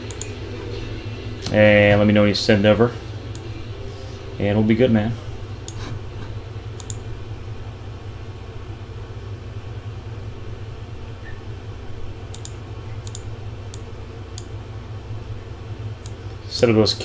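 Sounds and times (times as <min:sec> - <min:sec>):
sharp computer clicks: 0:00.0 - 0:00.4, 0:06.7 - 0:07.1, 0:12.3 - 0:14.5, 0:16.0 - 0:16.2
low electrical hum: 0:00.0 - 0:17.0.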